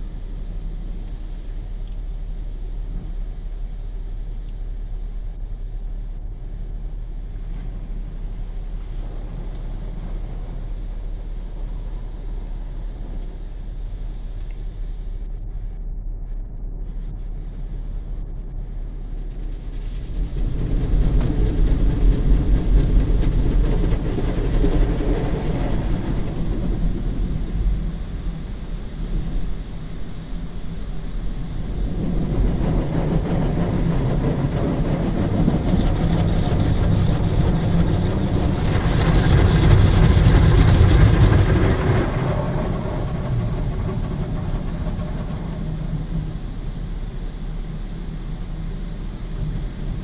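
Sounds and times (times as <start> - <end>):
car wash machinery rumbling: 17.0 - 50.0.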